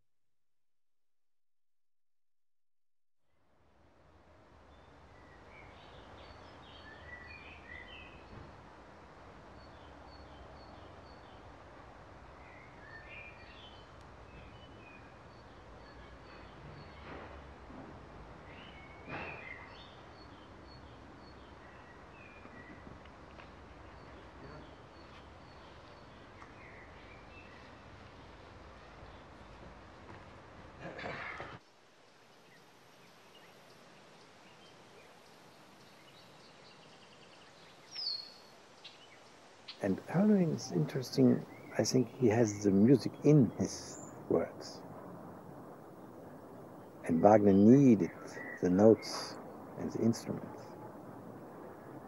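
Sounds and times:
birds twittering: 4.7 - 8.6, 12.2 - 17.5, 18.4 - 29.6, 32.3 - 52.0
birds chirping: 4.7 - 17.5, 18.4 - 29.9, 30.8 - 52.0
faint bird chirps: 46.0 - 51.0.

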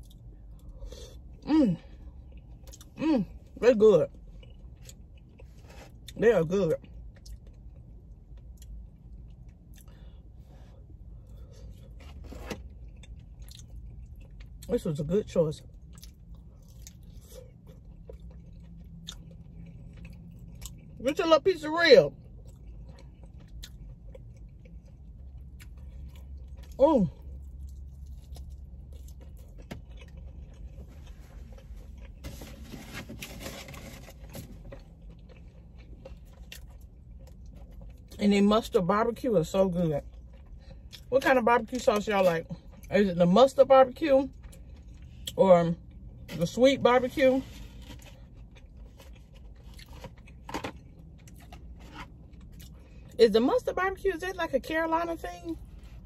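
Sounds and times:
person chewing meat: 0.0 - 14.7, 15.6 - 21.0, 22.2 - 32.3, 34.3 - 38.2, 44.3 - 46.3, 47.7 - 53.2
food containers rustling: 30.7 - 34.9.

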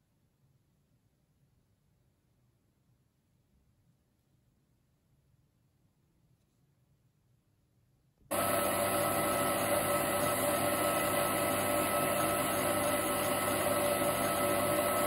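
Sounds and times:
lathe motor whining: 8.3 - 15.0.

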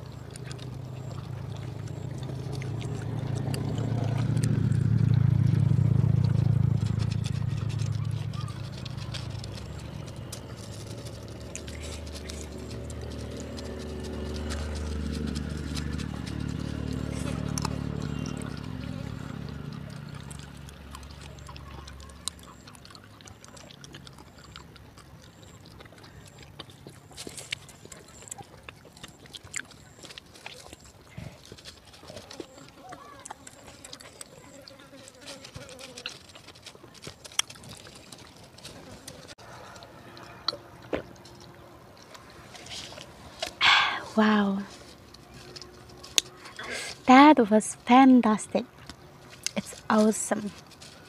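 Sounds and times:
low hum: 0.0 - 32.6
vehicle engine passing by: 0.0 - 36.8, 37.5 - 51.0
chewing: 0.0 - 51.0
faint clicks of eating: 0.0 - 51.0
fingers picking through food: 0.0 - 51.0.

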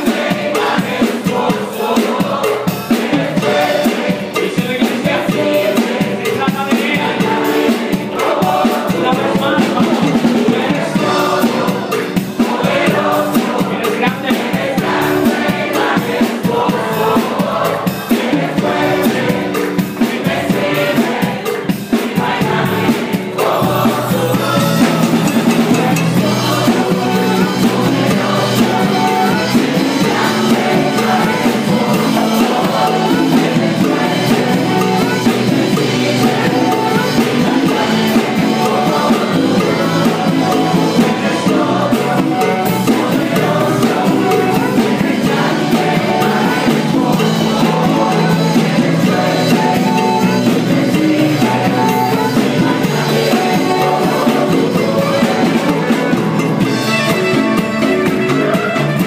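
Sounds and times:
drums: 0.0 - 59.0
group of people singing: 0.0 - 59.0
saxophones playing: 14.8 - 59.0.

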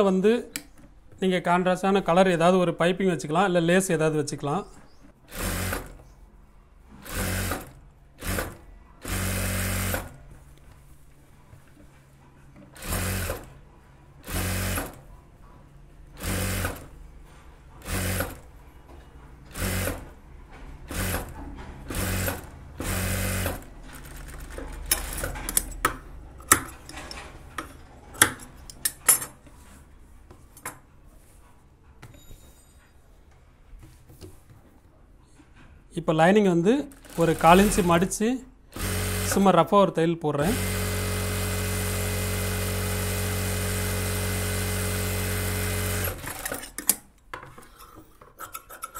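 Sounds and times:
sewing machine stitching: 5.3 - 6.0, 7.0 - 10.2, 12.7 - 13.6, 14.2 - 15.0, 16.2 - 17.0, 17.8 - 18.5, 19.5 - 20.2, 20.8 - 25.8, 36.9 - 38.1, 38.7 - 39.5, 40.4 - 47.0.

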